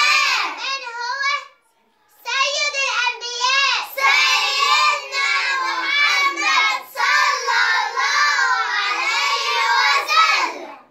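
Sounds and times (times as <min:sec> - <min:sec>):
children singing together: 0:00.0 - 0:00.6, 0:03.8 - 0:10.9.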